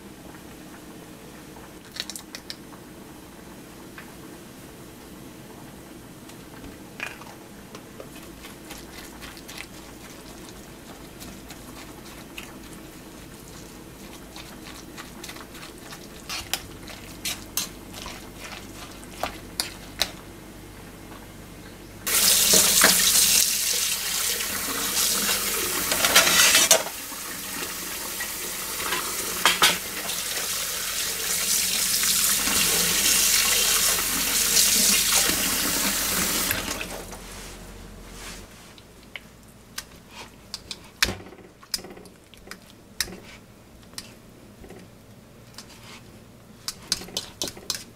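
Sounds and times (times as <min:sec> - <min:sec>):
tap water running into pan: 0:22.1 - 0:36.9.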